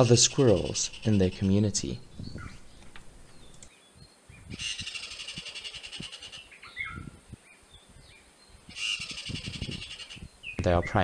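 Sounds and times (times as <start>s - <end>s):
squirrel buzzing trill: 0.0s - 3.6s, 4.5s - 7.0s, 8.7s - 10.3s.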